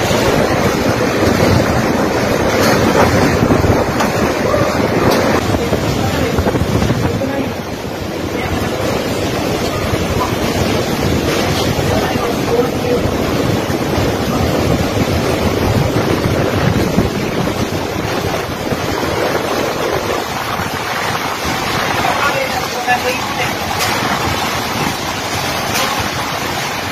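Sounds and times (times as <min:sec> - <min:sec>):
heavy rain: 0:00.0 - 0:26.9
strong wind: 0:00.0 - 0:26.9
wind buffeting microphone: 0:00.0 - 0:26.9.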